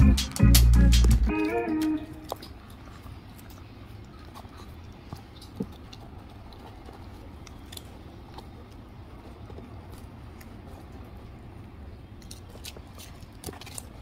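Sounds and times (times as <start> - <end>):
music phrase: 0.0 - 2.3
dog gnawing and crunching treat: 0.0 - 14.0.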